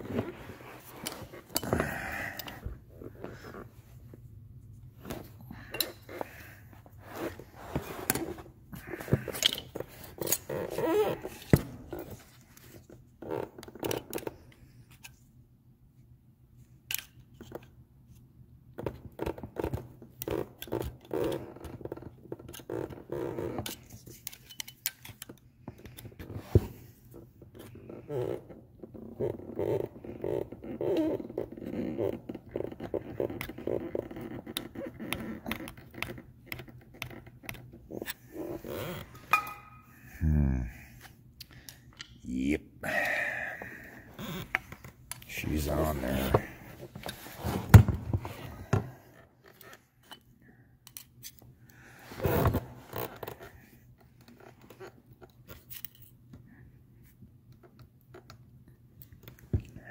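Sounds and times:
hand tools clicking and tapping on metal: 23.7s - 26.1s, 39.3s - 39.9s.

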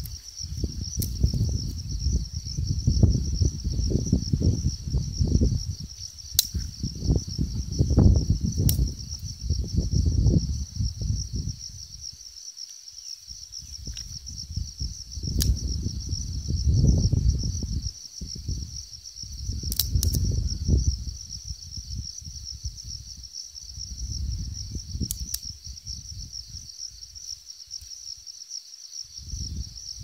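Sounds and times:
low gusty rumble: 0.0s - 12.2s, 13.3s - 27.1s, 29.2s - 30.0s
insects chirring: 0.0s - 30.0s
sharp clicks: 6.4s - 6.7s, 19.7s - 20.2s.

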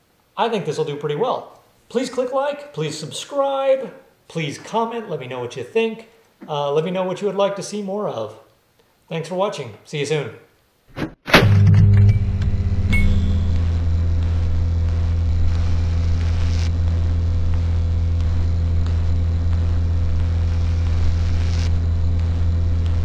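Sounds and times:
low electrical hum: 11.5s - 23.0s.

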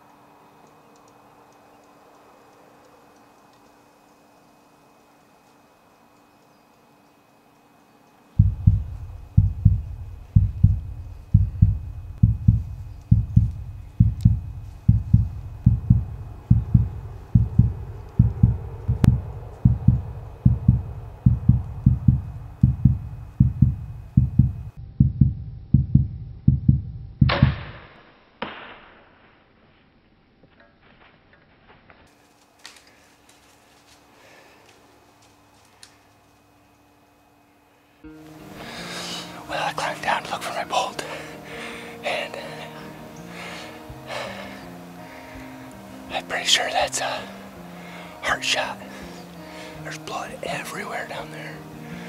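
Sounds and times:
heartbeat thumps: 8.4s - 27.6s
crossbow firing crack: 27.3s - 29.6s.

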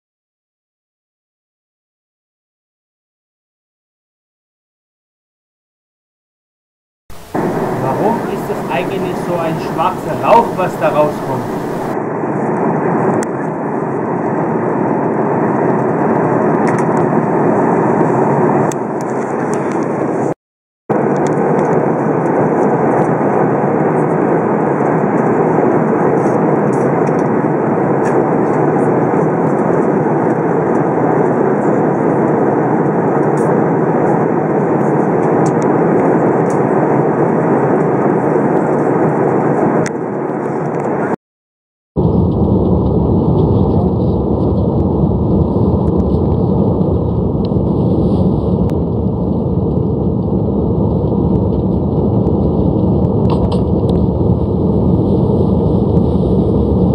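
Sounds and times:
jet airliner cabin noise: 7.1s - 12.5s, 42.0s - 56.9s.

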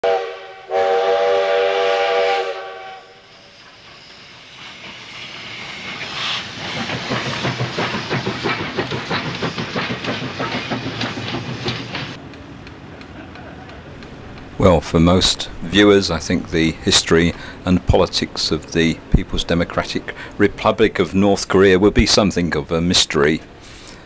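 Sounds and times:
steam locomotive whistle: 0.0s - 6.4s
locomotive running rhythmic beat: 3.6s - 14.8s.

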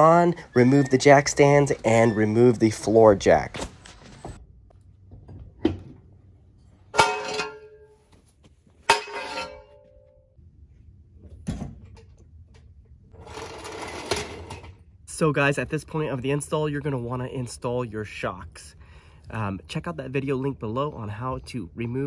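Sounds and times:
floor jack rolling: 13.2s - 14.7s.

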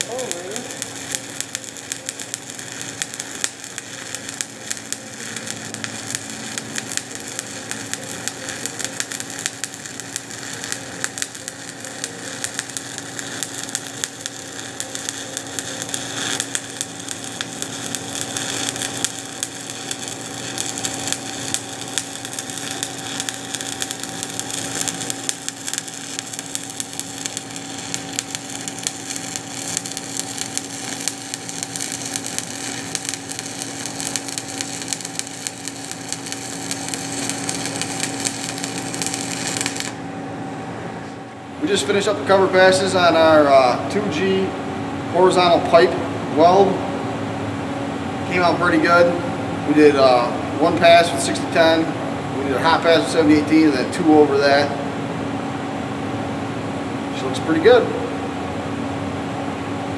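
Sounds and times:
welding arc crackling: 0.0s - 40.2s
steady hum: 0.0s - 59.9s.

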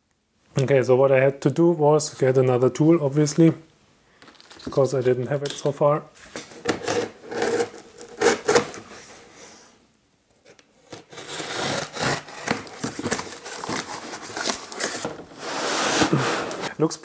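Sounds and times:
knife slitting packing tape: 6.6s - 8.9s, 10.8s - 16.7s
cardboard flaps scraping: 11.0s - 16.7s.

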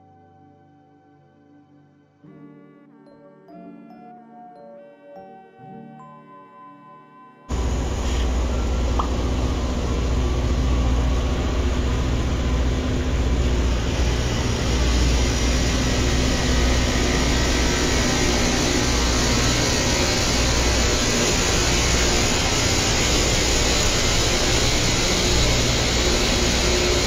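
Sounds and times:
harsh rail grinding: 7.5s - 27.0s
train rumbling on rails: 7.5s - 27.0s.

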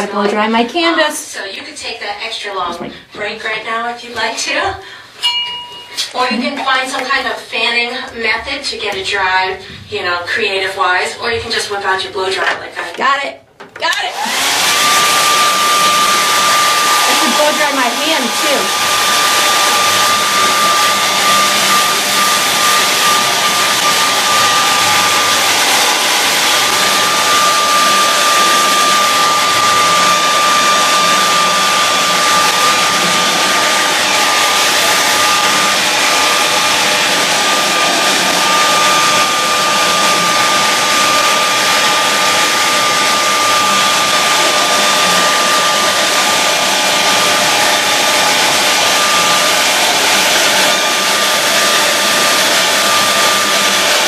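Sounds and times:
hair dryer blowing: 13.8s - 54.0s.

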